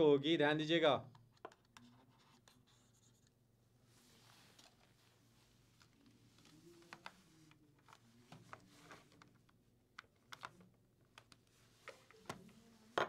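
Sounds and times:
faint clicks and taps: 1.0s - 3.4s, 5.8s - 13.0s.

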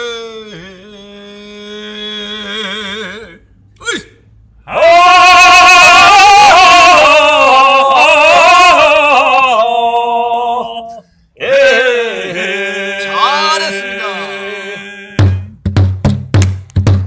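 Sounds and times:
person chanting held notes: 4.7s - 15.2s.

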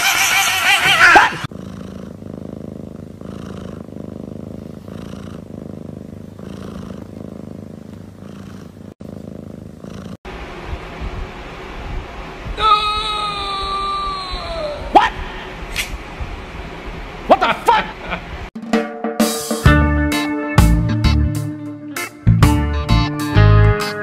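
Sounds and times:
cat purring: 1.4s - 10.3s.

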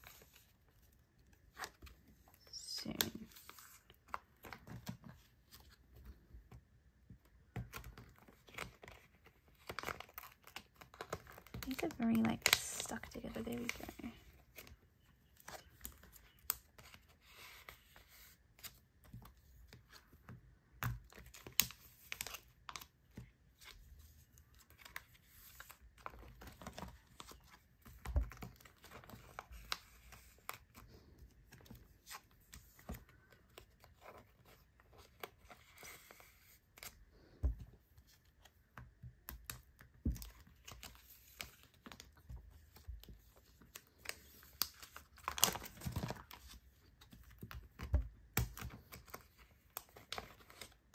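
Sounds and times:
plastic sleeves crinkling: 7.7s - 17.7s.

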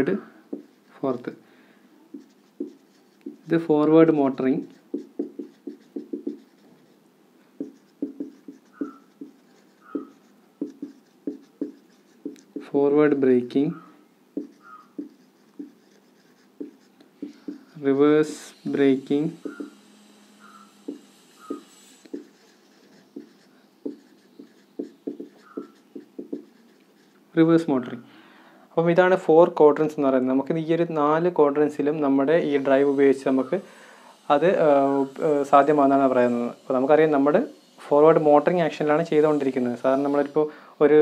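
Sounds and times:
marker pen writing on whiteboard: 0.0s - 1.4s, 2.0s - 27.7s
marker squeaks: 0.1s - 1.3s, 2.0s - 27.4s, 32.6s - 33.6s, 38.8s - 40.4s.

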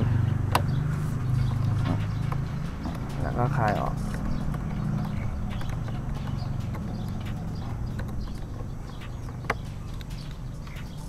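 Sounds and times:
hex driver clicking on metal: 4.1s - 11.0s.

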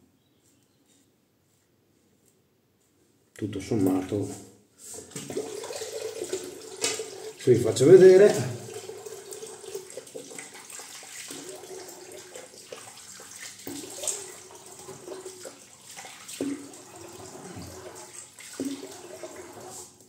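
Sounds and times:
water running from tap: 5.1s - 20.0s
water splashes: 5.1s - 20.0s.

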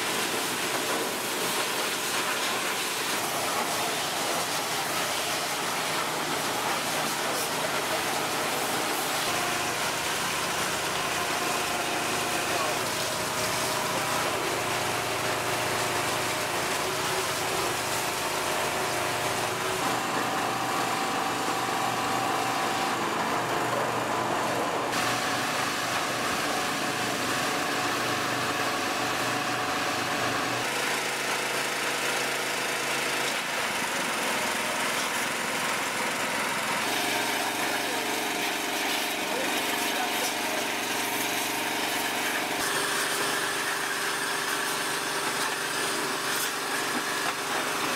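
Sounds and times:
high-pressure water spray hiss: 0.0s - 19.8s, 30.7s - 47.9s.

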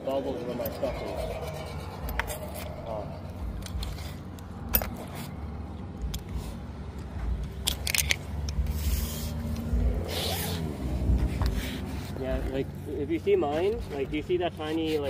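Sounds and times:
steady low rumble: 0.0s - 13.3s
light metallic clicks and clinks: 2.0s - 8.6s.

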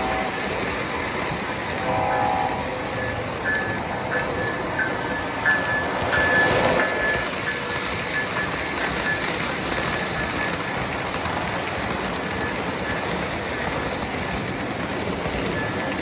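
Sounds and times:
model trains rumbling on track: 0.0s - 16.0s
thin high whine: 1.7s - 10.5s.

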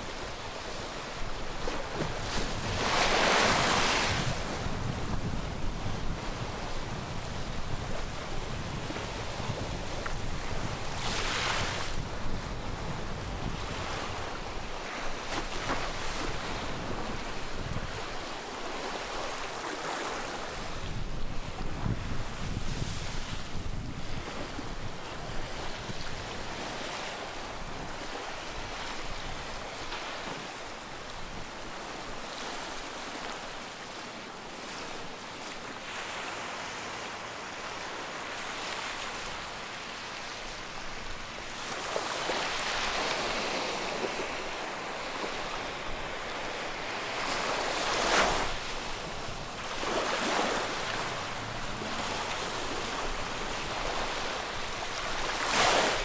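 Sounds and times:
sea waves washing on shore: 0.0s - 56.0s
wind buffeting microphone: 1.2s - 18.3s, 20.5s - 29.8s.

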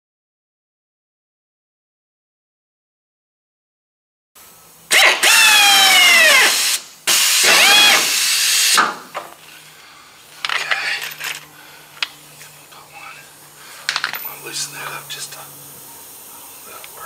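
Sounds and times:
air hissing: 4.4s - 11.0s
pneumatic drill whining: 4.9s - 9.0s.

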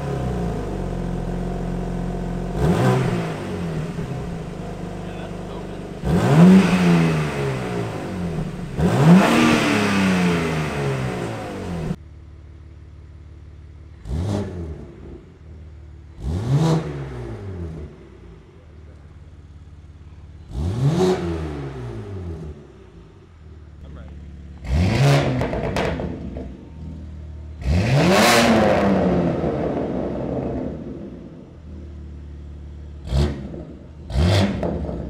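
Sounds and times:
car engine revving: 0.0s - 12.0s, 13.9s - 35.0s
car engine idling: 0.0s - 16.3s, 17.9s - 20.6s, 22.5s - 24.8s, 28.8s - 35.0s.

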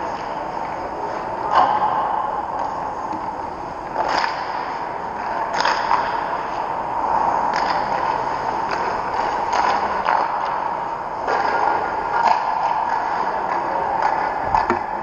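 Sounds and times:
skate scrapes and knocks: 3.9s - 15.0s.

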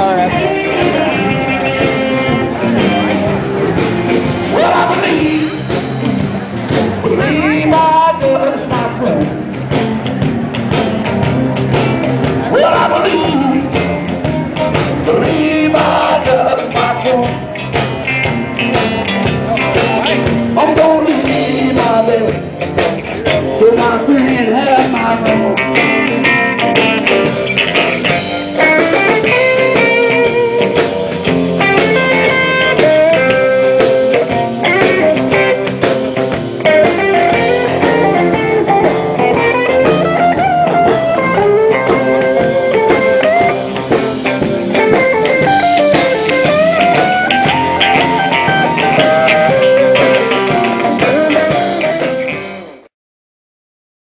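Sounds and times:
blues band playing: 0.0s - 52.9s
guitar melody: 0.0s - 52.9s.

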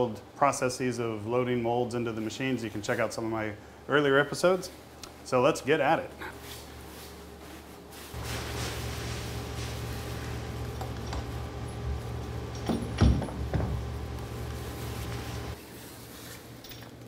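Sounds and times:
machine humming: 8.2s - 15.6s
metal knocks and clunks: 12.5s - 13.9s.

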